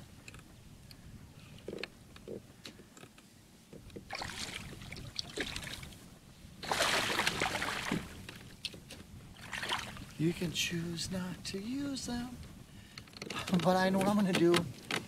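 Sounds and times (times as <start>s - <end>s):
water splashing and sloshing: 3.7s - 10.4s.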